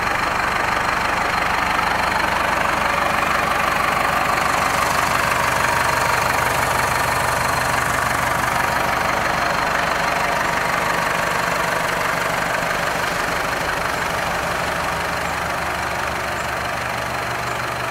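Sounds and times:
tractor diesel engine idling: 0:00.0 - 0:17.9.

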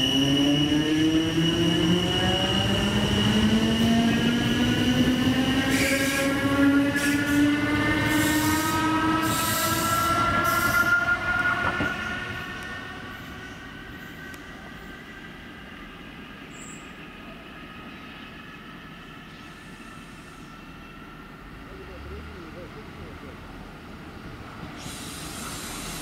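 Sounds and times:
hiss from wheels and rails: 0:05.6 - 0:15.2, 0:19.2 - 0:20.8, 0:24.2 - 0:26.0.

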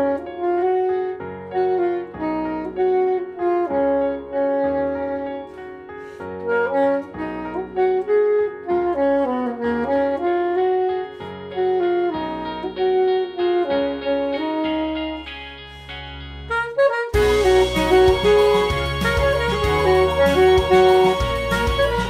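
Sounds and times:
soprano saxophone melody: 0:00.0 - 0:15.7, 0:16.4 - 0:22.0
low chords and bass backing: 0:11.4 - 0:22.0.

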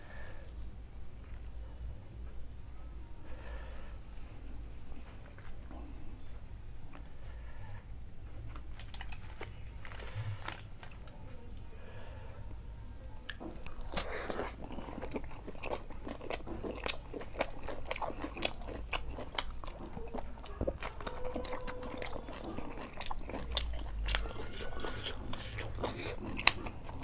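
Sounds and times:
person chewing food: 0:13.3 - 0:27.0.

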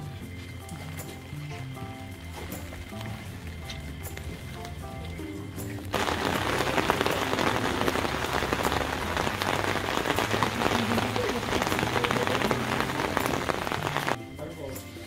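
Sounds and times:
rain falling: 0:05.8 - 0:14.2.

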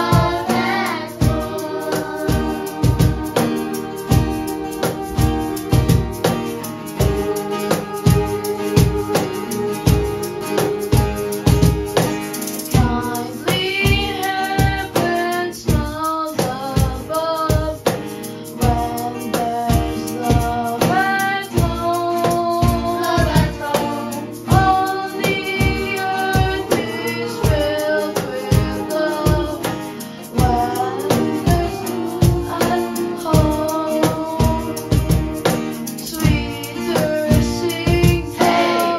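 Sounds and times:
boy singing into a microphone: 0:00.0 - 0:06.3, 0:06.9 - 0:38.9
steady beat: 0:00.0 - 0:13.0
guitar accompaniment: 0:00.0 - 0:38.9.

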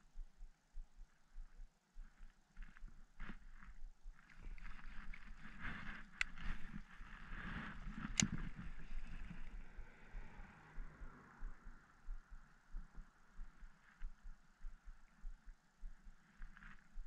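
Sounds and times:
light ticking: 0:08.0 - 0:17.0.

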